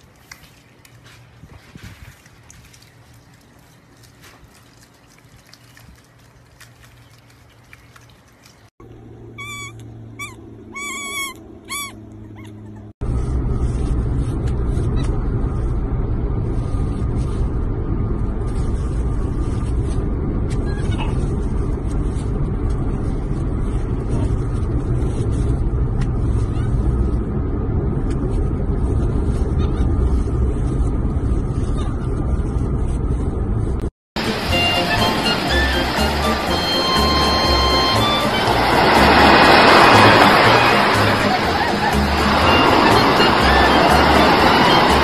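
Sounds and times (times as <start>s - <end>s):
car engine and road rumble: 8.2s - 45.0s
squeaky animal calls: 9.4s - 12.9s.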